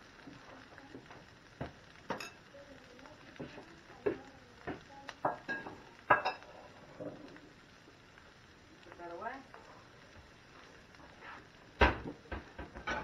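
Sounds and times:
dishes and utensils clinking: 2.1 - 2.4, 5.2 - 7.2, 12.6 - 13.0.

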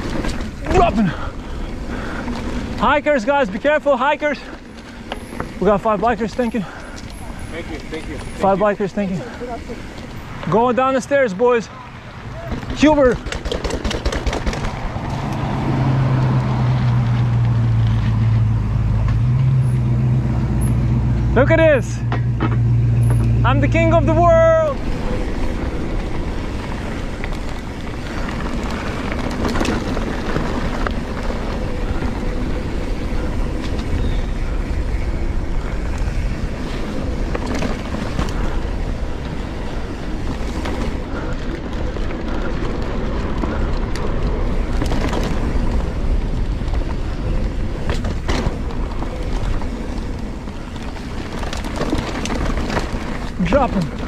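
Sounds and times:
tyres rumbling on dirt: 0.0 - 54.0
bike knocks and rattles: 12.4 - 15.3, 22.0 - 54.0.

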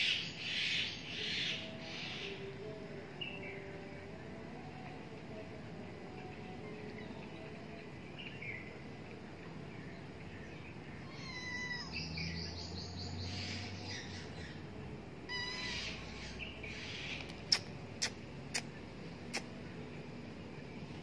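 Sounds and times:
kitten mewing: 11.1 - 12.0, 15.3 - 15.9.

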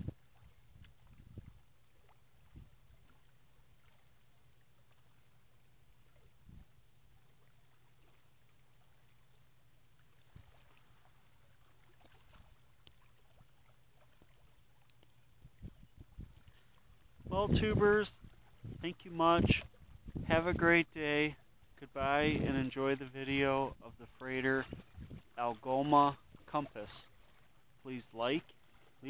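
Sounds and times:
faint ticks: 11.9 - 15.4.

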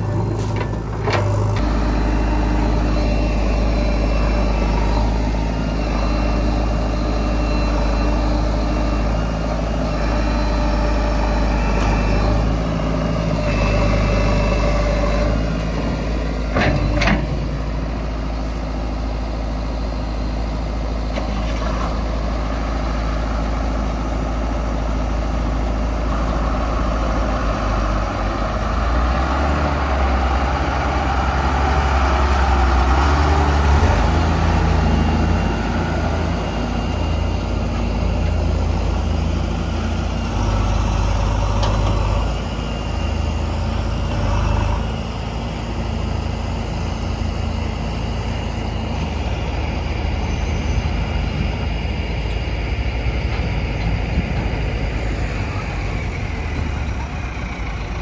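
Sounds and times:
diesel engines idling: 0.0 - 58.0.

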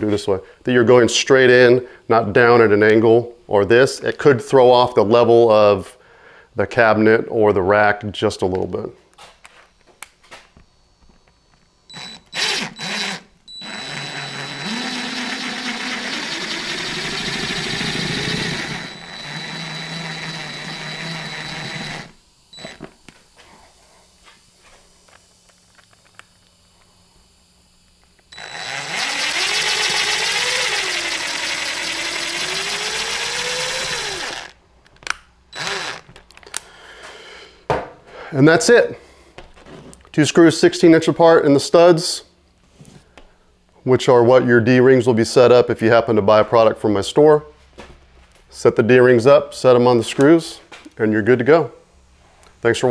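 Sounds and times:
cordless drill driving screws: 11.9 - 22.9, 28.3 - 34.6, 35.6 - 36.2.

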